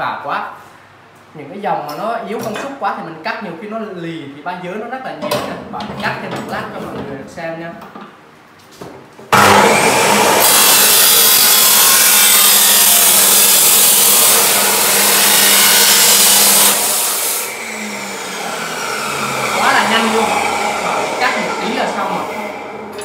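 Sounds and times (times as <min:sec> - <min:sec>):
cut-off saw grinding steel: 0:09.3 - 0:23.0
saw motor winding down: 0:09.3 - 0:23.0.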